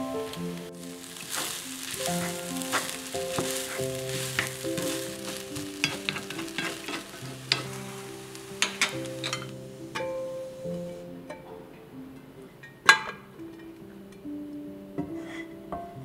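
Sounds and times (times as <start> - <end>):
rice sizzling in a wok: 0.0 - 11.2
soft background music: 0.0 - 16.0
spatula scraping a pan: 0.7 - 10.2.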